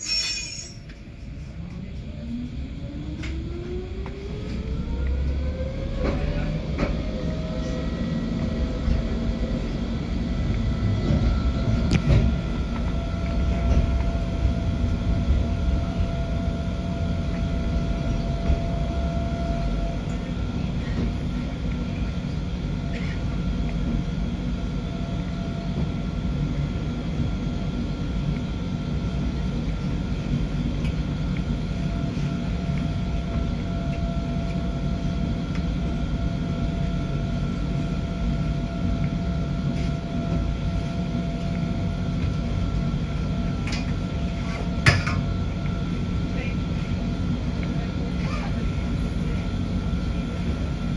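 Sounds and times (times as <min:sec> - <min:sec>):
rack railway car rumbling: 0:00.0 - 0:01.9, 0:05.9 - 0:16.1
constant whine: 0:00.0 - 0:50.9.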